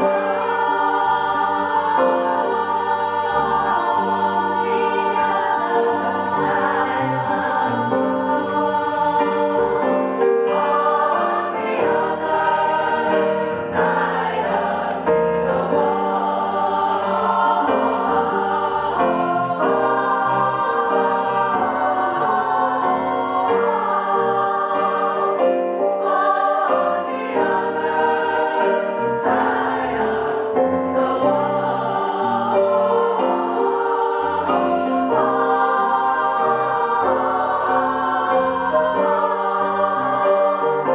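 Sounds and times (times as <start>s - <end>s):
choir singing in harmony: 0.0s - 40.9s.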